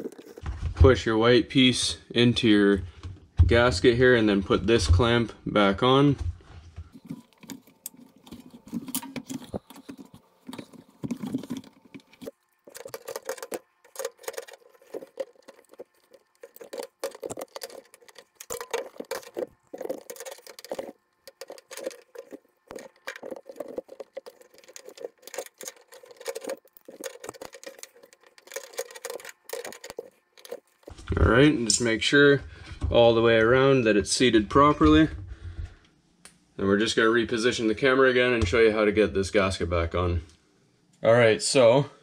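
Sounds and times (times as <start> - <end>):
rubber rubbing and creaking: 0.0 - 1.0, 6.9 - 31.4.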